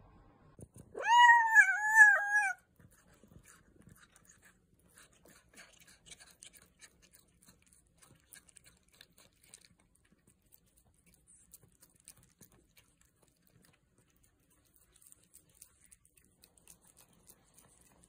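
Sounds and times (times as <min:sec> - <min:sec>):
cat meowing: 0:00.9 - 0:02.6
cat chewing clicks: 0:02.9 - 0:18.0.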